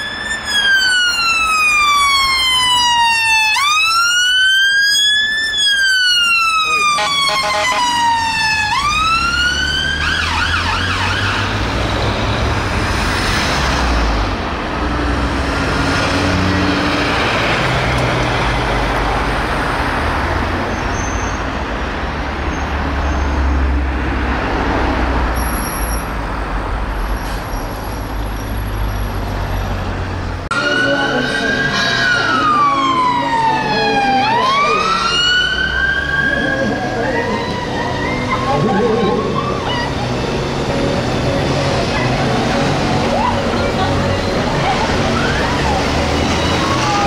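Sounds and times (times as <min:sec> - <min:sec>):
emergency siren wailing: 0:00.0 - 0:13.0, 0:30.5 - 0:47.0
traffic noise: 0:00.0 - 0:47.0.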